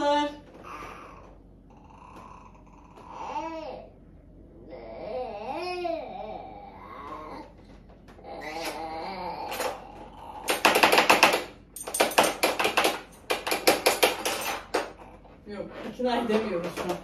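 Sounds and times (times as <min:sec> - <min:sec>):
baby babbling: 0:01.9 - 0:03.9, 0:04.6 - 0:07.5, 0:08.2 - 0:10.0.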